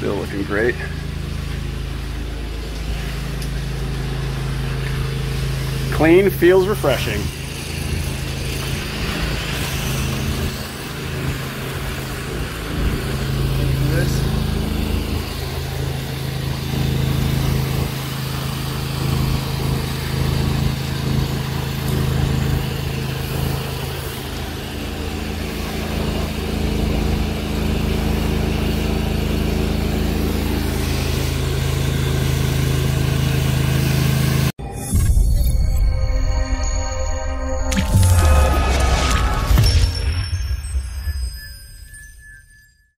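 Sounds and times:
small engine running: 0.0s - 35.2s
water spraying from hose: 2.2s - 34.4s.

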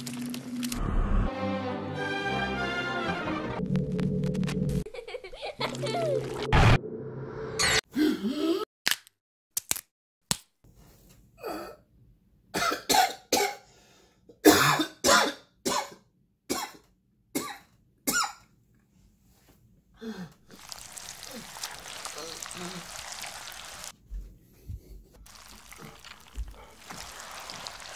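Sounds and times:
man coughing: 12.6s - 13.6s, 14.4s - 16.8s.

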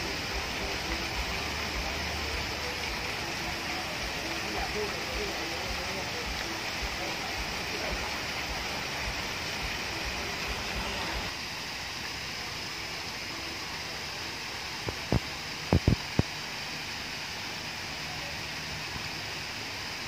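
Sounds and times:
waterfall rushing: 0.0s - 20.0s
short low thumps: 14.9s - 16.2s.

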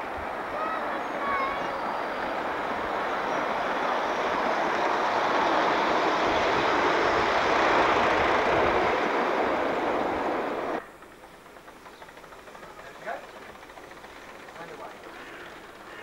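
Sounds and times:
model train wheels rattling on rail: 6.5s - 16.0s.

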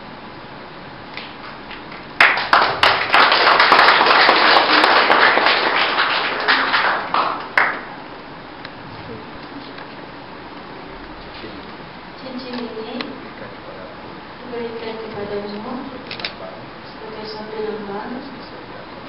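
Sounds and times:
people applauding: 1.7s - 8.0s.

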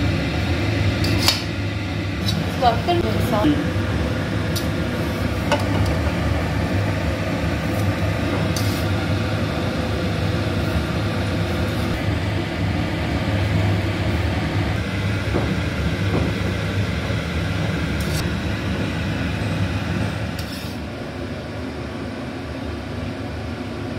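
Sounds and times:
low mechanical hum: 0.0s - 23.9s.

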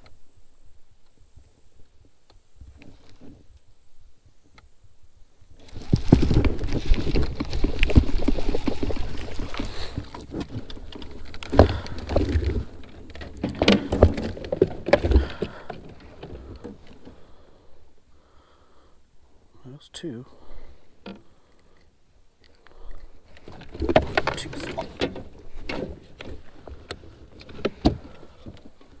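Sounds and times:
fish splashing at surface: 5.8s - 12.6s.

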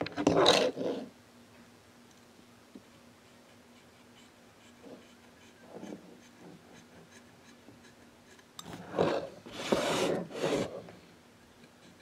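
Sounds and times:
hand rubbing across board: 8.8s - 10.9s.

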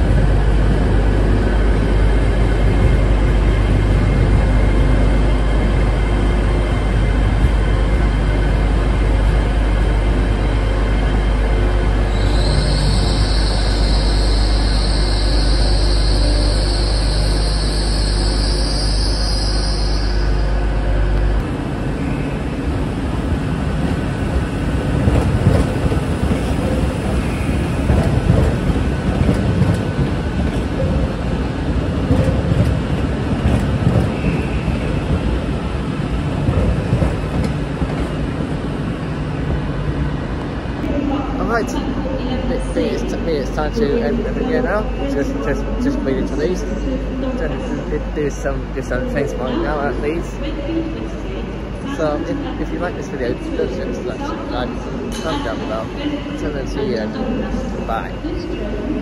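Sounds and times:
train low rumble: 0.0s - 59.0s
train hiss: 12.2s - 20.4s.

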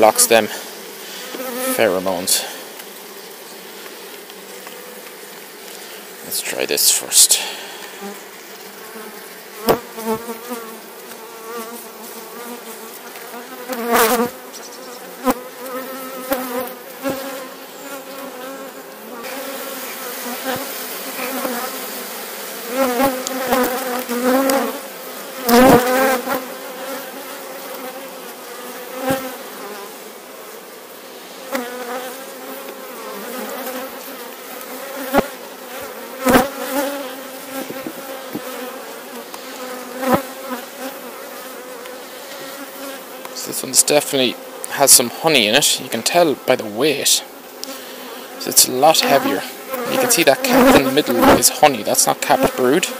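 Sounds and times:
bees buzzing: 0.0s - 52.9s
wooden hive frames knocking: 37.5s - 38.6s.

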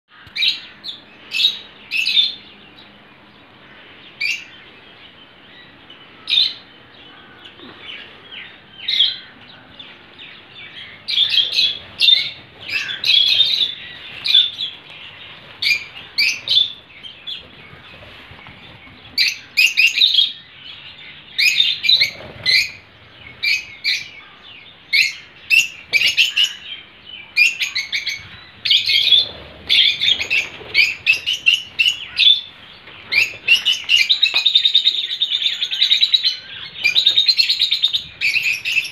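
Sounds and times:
birds chirping: 0.1s - 38.9s.

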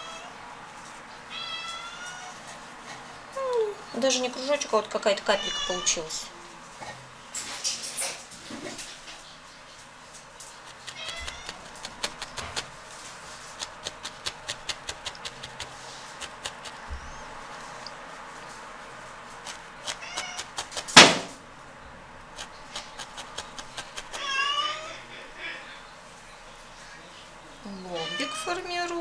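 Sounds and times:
cat meowing: 1.3s - 2.4s, 5.3s - 6.1s, 10.8s - 11.7s, 19.9s - 20.6s, 24.0s - 25.1s, 27.8s - 28.6s
felting needle clicks: 10.7s - 12.7s
sharp knock: 20.6s - 21.4s.

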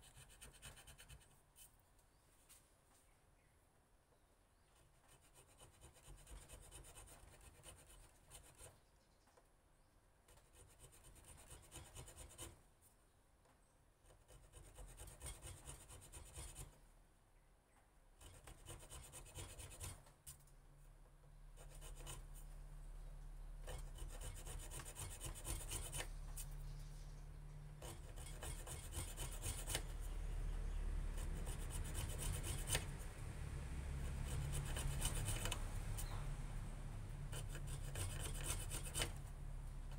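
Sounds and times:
blade scraping wooden handle: 31.2s - 33.1s, 37.3s - 39.3s.

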